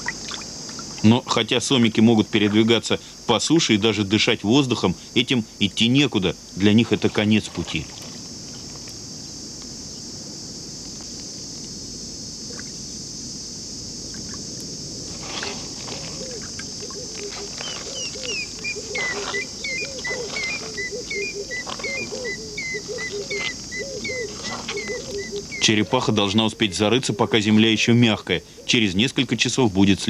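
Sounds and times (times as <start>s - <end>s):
high-pitched insect chorus: 0.0s - 30.0s
animal chirping: 16.0s - 27.9s.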